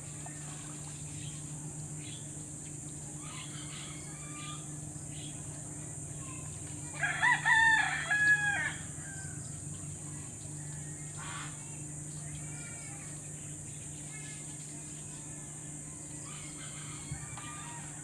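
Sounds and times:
rooster crowing: 7.0 - 9.5, 16.0 - 18.0.

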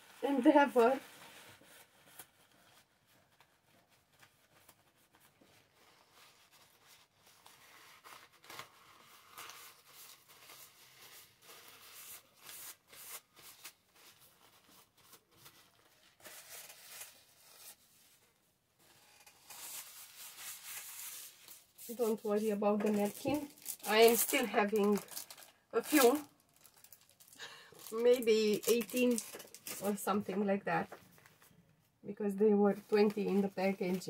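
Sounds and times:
paper napkin rustling: 19.1 - 31.5.

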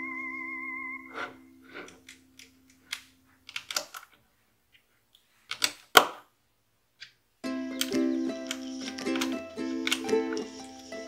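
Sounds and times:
plastic toy bricks clicking: 2.0 - 4.1, 5.5 - 6.2, 7.8 - 10.5.

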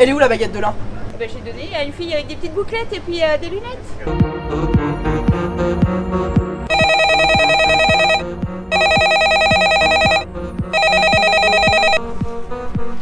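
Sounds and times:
background music with beat: 4.1 - 13.0
smartphone ringing: 6.7 - 12.0.

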